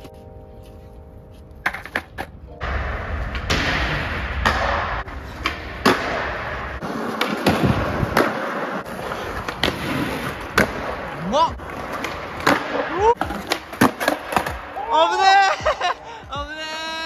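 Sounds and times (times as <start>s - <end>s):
skateboard wheels rolling on concrete: 0.0s - 17.0s
skateboard pops and clacks: 7.1s - 8.5s, 9.4s - 11.0s, 12.0s - 14.6s.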